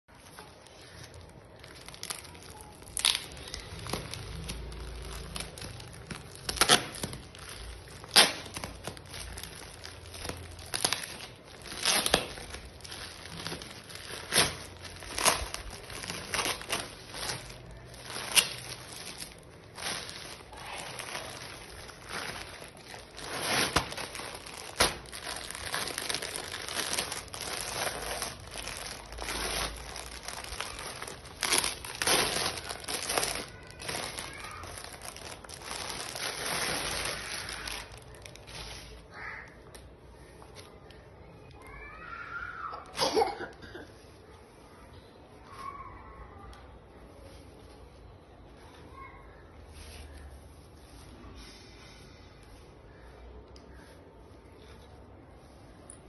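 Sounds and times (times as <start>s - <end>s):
plastic film crinkling: 0.1s - 42.2s
tape ripping: 1.6s - 39.0s.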